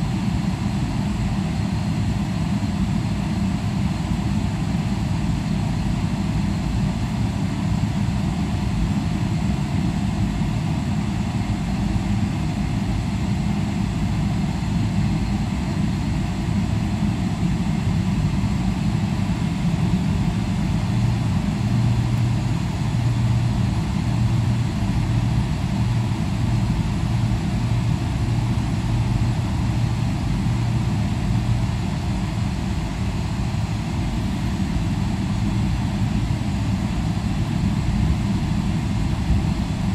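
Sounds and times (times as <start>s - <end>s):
jet engines idling rumble: 0.0s - 39.9s.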